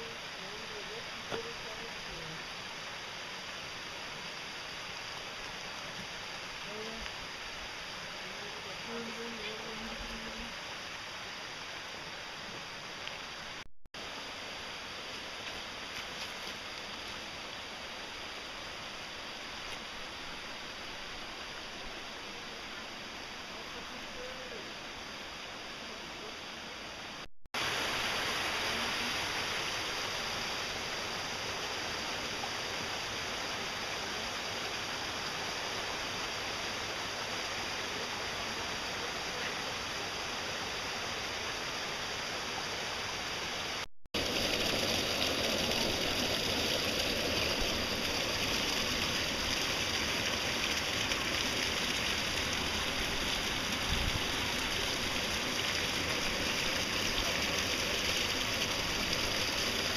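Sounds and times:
mountain stream rushing: 0:00.0 - 0:59.9.

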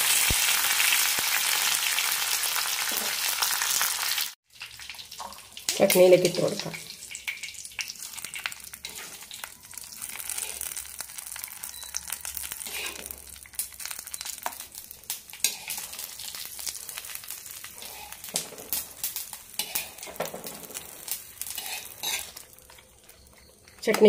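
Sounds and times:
seeds sizzling in hot oil: 0:00.0 - 0:24.0
crackling pops: 0:00.2 - 0:01.3.

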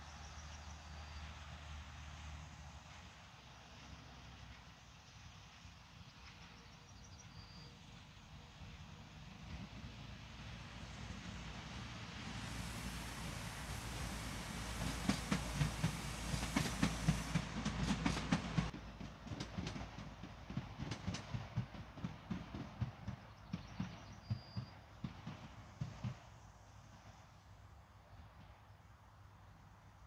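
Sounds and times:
train wheels clattering: 0:09.3 - 0:27.0.

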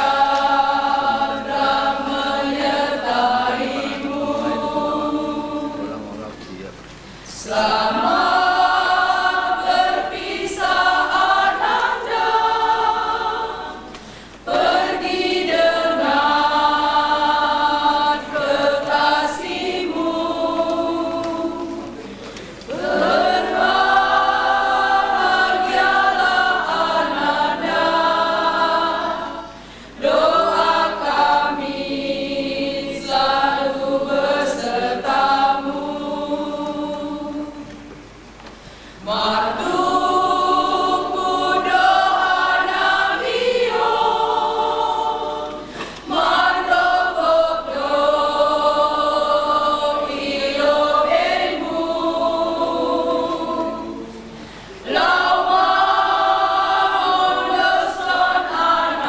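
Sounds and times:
women's choir singing a hymn: 0:00.0 - 0:06.2, 0:07.2 - 0:38.2, 0:38.8 - 0:59.0.

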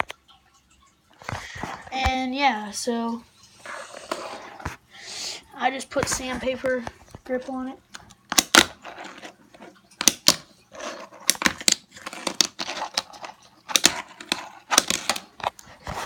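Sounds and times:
scratchy rubbing: 0:03.6 - 0:04.8, 0:08.6 - 0:09.8, 0:10.7 - 0:16.0.

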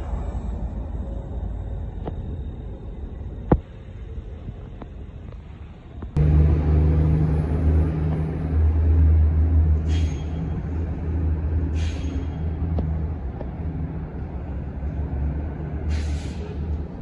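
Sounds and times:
bus engine running: 0:03.0 - 0:17.0
air hiss bursts: 0:09.8 - 0:10.4, 0:11.7 - 0:12.4, 0:15.9 - 0:16.7.

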